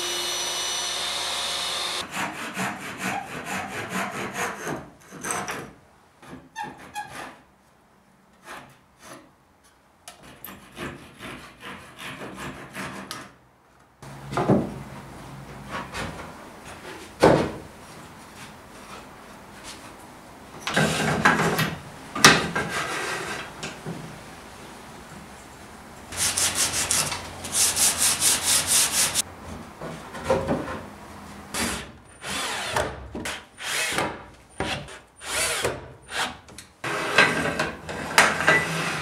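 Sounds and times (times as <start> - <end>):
handsaw cutting wood: 0.0 - 4.7, 26.2 - 29.2, 31.6 - 34.1.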